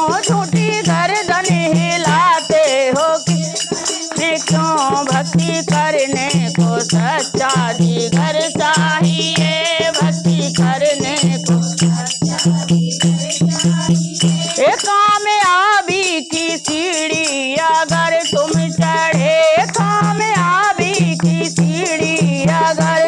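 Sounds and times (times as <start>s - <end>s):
jingling hand percussion: 0.0s - 23.0s
women singing devotional song: 0.0s - 23.0s.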